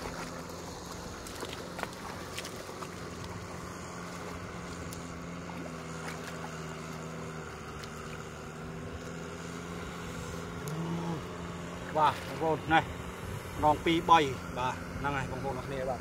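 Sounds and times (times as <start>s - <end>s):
hands slapping wet mud: 0.0s - 3.5s
engine humming: 0.0s - 16.0s.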